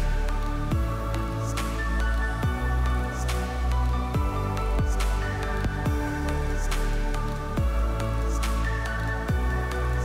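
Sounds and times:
electronic music with synth chords: 0.0 - 10.0
deep kick drum: 0.7 - 1.1, 4.2 - 5.0, 5.7 - 6.1, 9.3 - 9.6.

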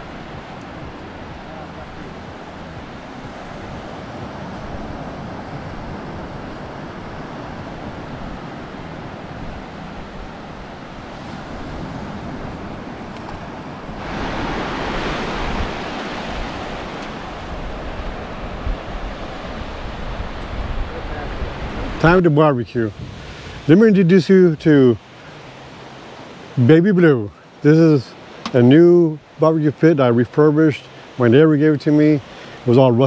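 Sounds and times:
wind on microphone: 0.0 - 22.2, 22.8 - 23.7
ocean surf breaking: 0.0 - 33.0.

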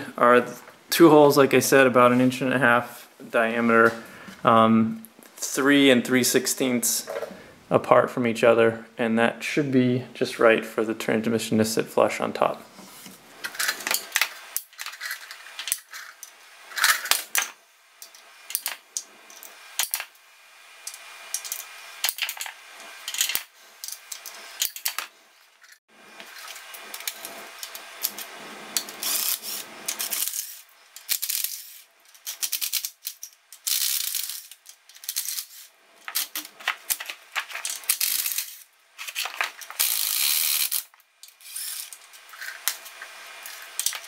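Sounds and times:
hand ratchet clicking: 28.8 - 44.0.

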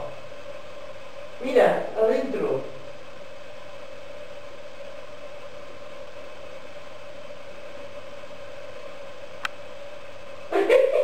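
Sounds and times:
constant hiss: 0.0 - 11.0
steady hum: 0.0 - 11.0.

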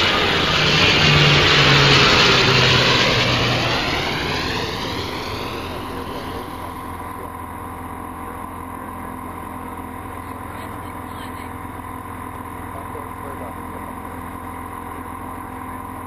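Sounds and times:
rushing air: 0.0 - 7.2
propeller airplane engine drone: 0.0 - 16.0.

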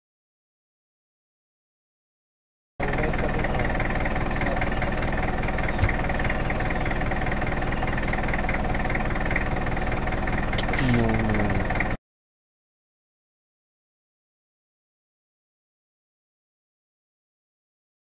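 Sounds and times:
vehicle engine idling: 2.8 - 12.0.

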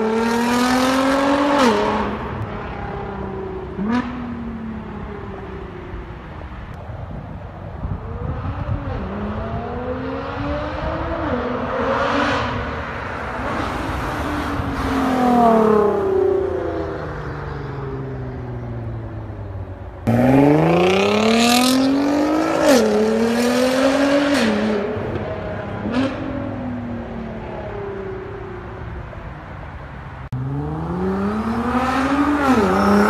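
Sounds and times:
car engine accelerating: 18.2 - 28.4, 30.2 - 33.0.

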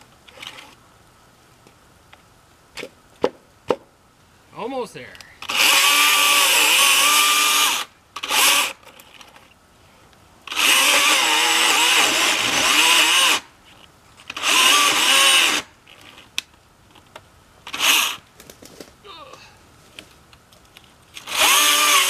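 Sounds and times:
battery chainsaw cutting wood: 5.4 - 8.8, 10.5 - 13.5, 14.2 - 15.7, 17.7 - 18.2, 21.2 - 22.0.

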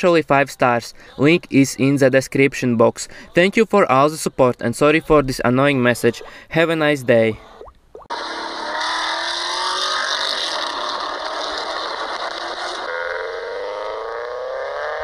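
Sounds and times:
car engine accelerating: 8.1 - 15.0.

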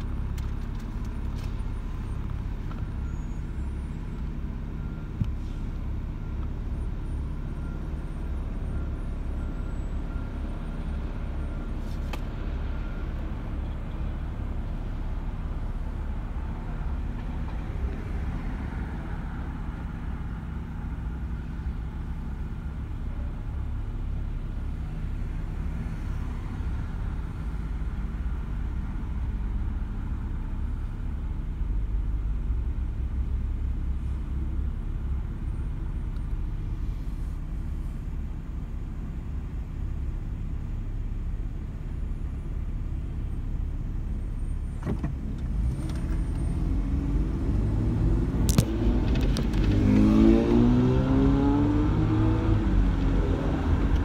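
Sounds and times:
car engine rumble: 0.0 - 54.0
road noise: 0.0 - 54.0.

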